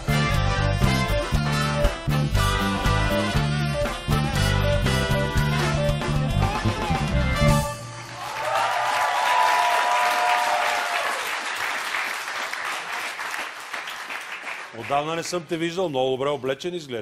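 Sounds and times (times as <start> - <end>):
upbeat jazzy band music: 0.0 - 8.2
studio audience applause: 7.8 - 15.4.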